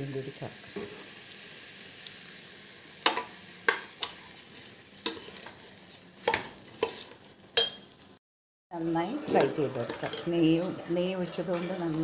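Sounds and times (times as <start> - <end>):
faint sizzle: 0.0 - 12.0
ladle clinking and scraping pot: 5.0 - 5.6, 6.2 - 7.9, 9.2 - 12.0.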